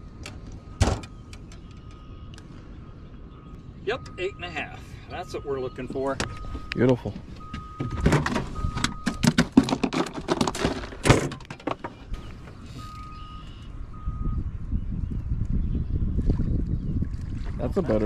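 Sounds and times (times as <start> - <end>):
gear knocking and rattling in boat: 7.8 - 12.6.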